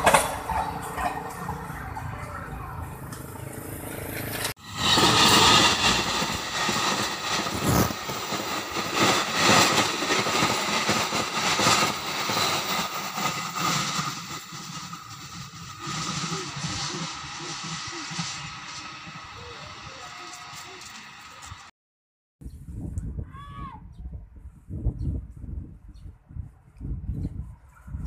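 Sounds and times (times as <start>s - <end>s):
train wheels clattering on rails: 0.0s - 2.1s, 3.0s - 21.7s.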